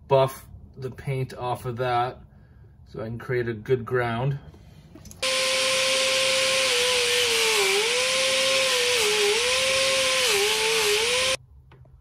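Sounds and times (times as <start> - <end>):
rotary grinder whining on metal: 5.2 - 11.4.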